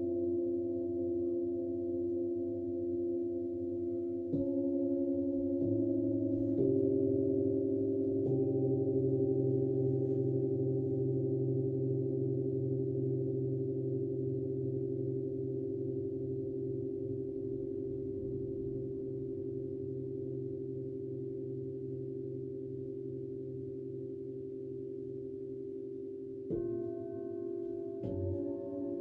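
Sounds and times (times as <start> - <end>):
metal singing bowls ringing: 2.4 - 15.9, 26.5 - 29.0.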